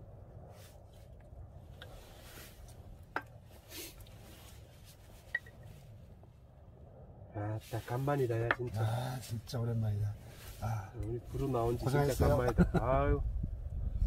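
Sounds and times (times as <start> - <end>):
low steady hum: 0.0 - 14.0
faint rustles: 0.4 - 6.5, 7.4 - 12.2.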